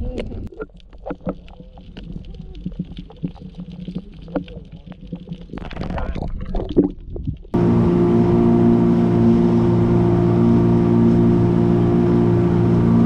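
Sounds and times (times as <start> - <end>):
sharp clicks and crackles: 0.0 - 7.6
low underwater rumble: 0.0 - 13.0.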